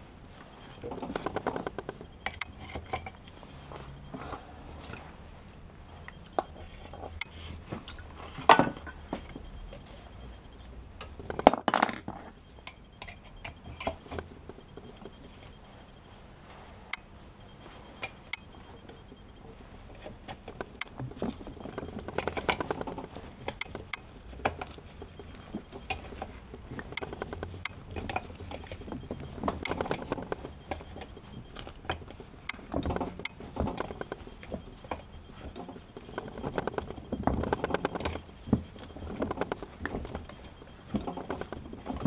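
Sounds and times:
metal tools clinking on engine: 0:00.8 - 0:03.3, 0:11.3 - 0:15.6.

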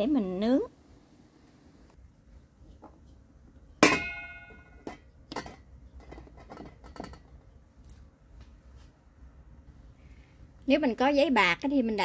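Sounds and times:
metal tin clanking in metal pot: 0:03.8 - 0:07.4.

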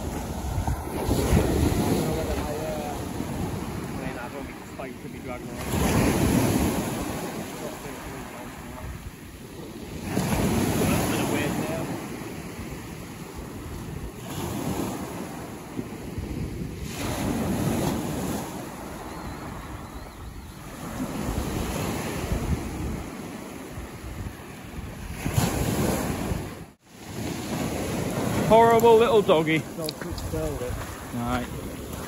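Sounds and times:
surf breaking on shingle beach: 0:00.0 - 0:16.1, 0:25.1 - 0:32.0
wind buffeting microphone: 0:00.0 - 0:32.0.

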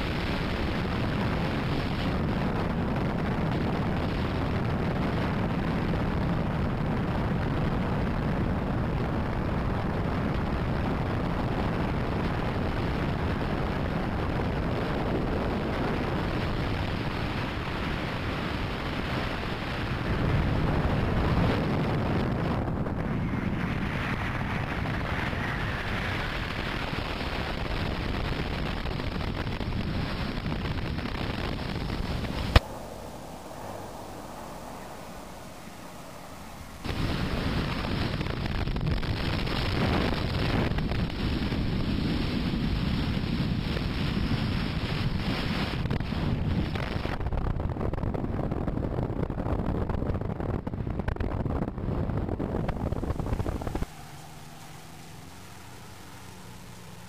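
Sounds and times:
ultralight engine drone: 0:00.0 - 0:57.0
wind rushing over microphone: 0:00.0 - 0:57.0.

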